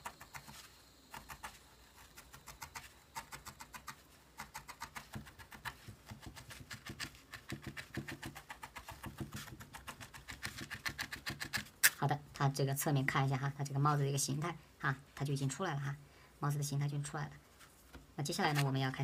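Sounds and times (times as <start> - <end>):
felting needle jabbing into foam: 0.1 - 12.0.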